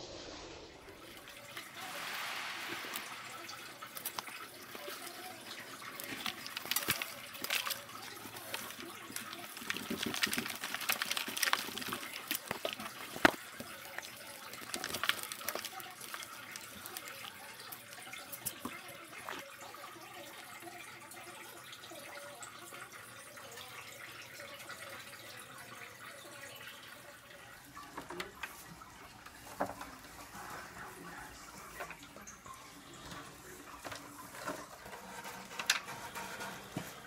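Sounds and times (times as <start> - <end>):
steady hiss: 0.0 - 4.8
cuttings pulled from potting soil: 5.5 - 18.7.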